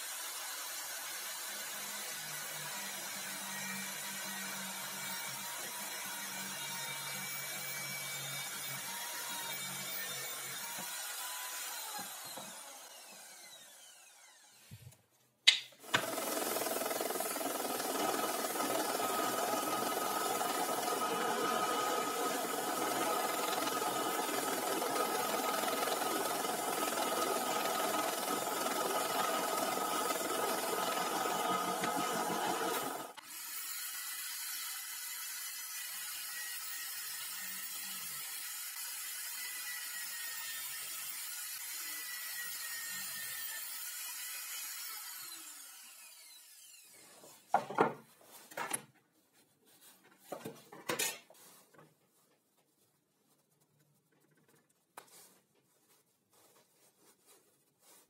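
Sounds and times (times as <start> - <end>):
power tool motor whining: 9.5 - 14.7, 15.8 - 33.7
electric drill whine winding down: 11.6 - 14.7
sharp click: 15.5 - 15.8.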